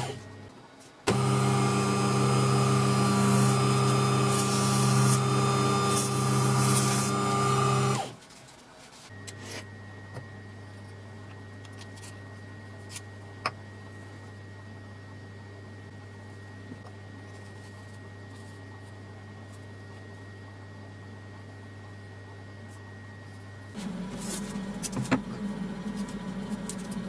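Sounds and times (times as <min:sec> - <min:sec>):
wood lathe motor humming: 0:01.1 - 0:08.1.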